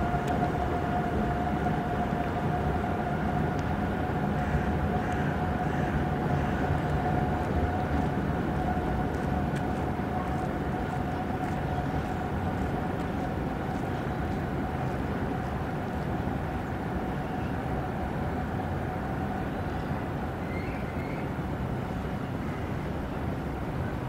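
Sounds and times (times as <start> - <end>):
mid-pitched whine: 0.0 - 24.0
train rumbling: 0.0 - 24.0
faint track clicks: 3.5 - 3.7, 6.8 - 15.6.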